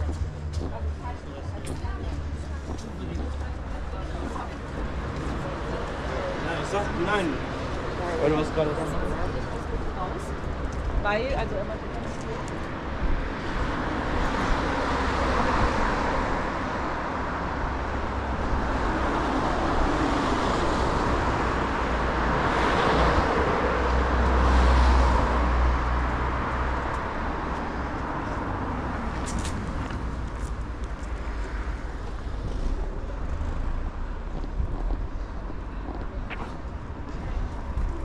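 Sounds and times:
road traffic noise: 0.0s - 38.0s.

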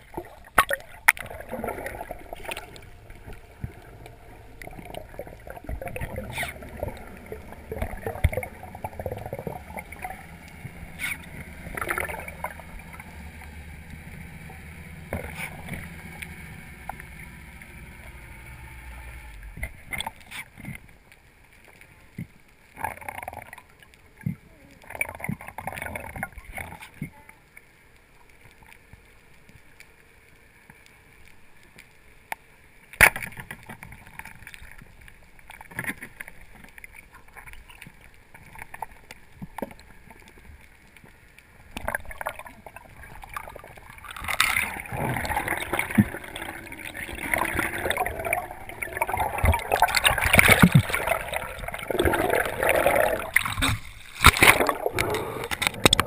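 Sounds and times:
loud bubbling and rushing water: 0.0s - 20.3s, 41.7s - 56.0s
quiet underwater noise: 0.0s - 56.0s
scattered underwater clicks: 0.0s - 56.0s.

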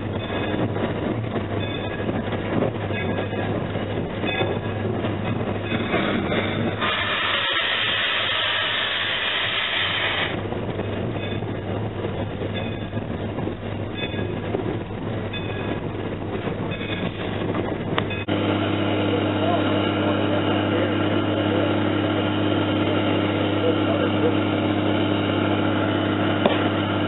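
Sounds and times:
steam locomotive running noise: 0.0s - 27.0s
loud steam hiss: 6.8s - 10.4s.

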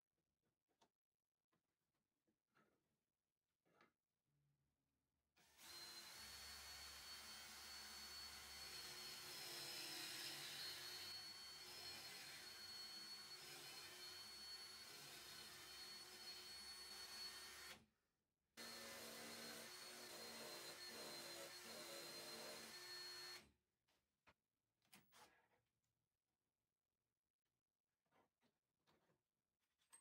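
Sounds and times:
cordless drill high whine: 5.4s - 17.8s, 18.6s - 23.4s.

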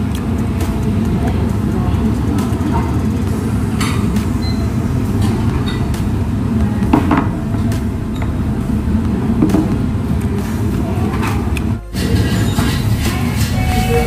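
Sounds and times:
restaurant background rumble: 0.0s - 14.0s.

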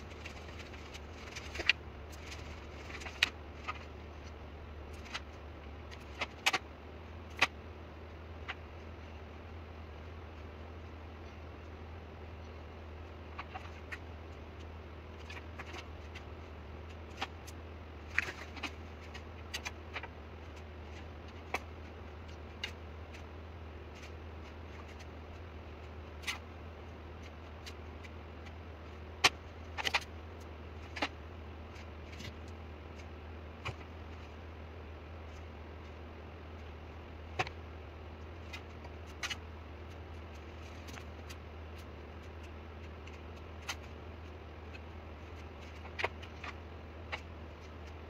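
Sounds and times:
steady low hum: 0.0s - 48.0s.

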